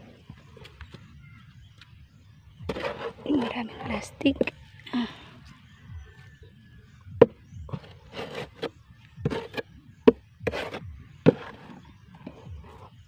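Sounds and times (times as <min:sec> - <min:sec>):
hand hoe scraping dry soil: 0:02.7 - 0:04.5, 0:07.2 - 0:13.0.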